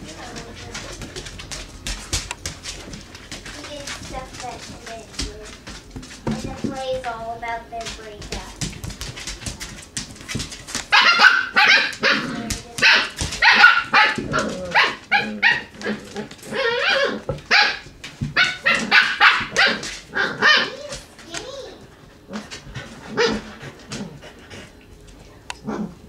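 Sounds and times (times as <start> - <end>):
puppies yipping and barking: 10.9 - 21.0.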